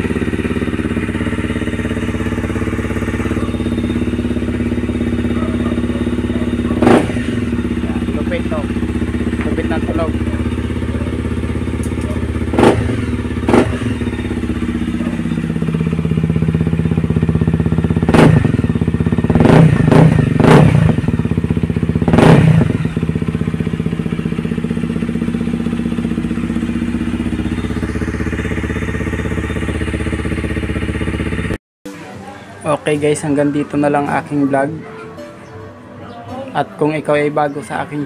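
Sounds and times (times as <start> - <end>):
motorcycle engine idling: 0.0 - 31.6
motorcycle throttle blips: 0.0 - 31.6.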